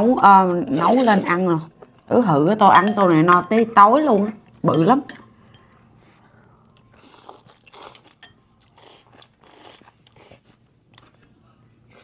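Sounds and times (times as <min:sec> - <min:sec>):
person chewing crunchy food: 0:06.7 - 0:12.0.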